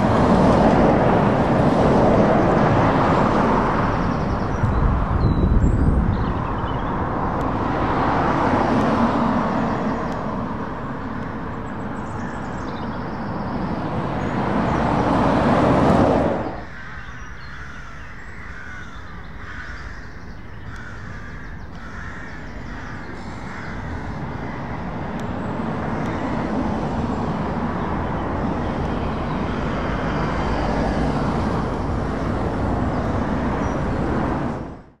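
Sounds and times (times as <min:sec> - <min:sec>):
traffic passing: 0:00.0 - 0:35.0
bird calling: 0:16.4 - 0:26.6.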